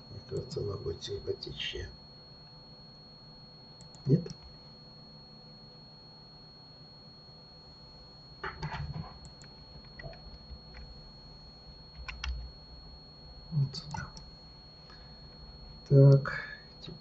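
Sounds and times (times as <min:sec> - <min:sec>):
keyboard key presses: 0:08.4 - 0:10.9, 0:12.0 - 0:12.4.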